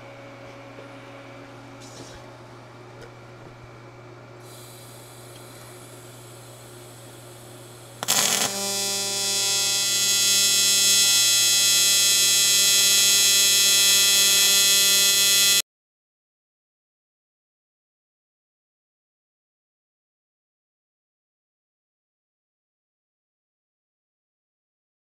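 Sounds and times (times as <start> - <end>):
welding arc high-pitched buzz: 4.4 - 15.6
welding arc crackle: 4.5 - 15.6.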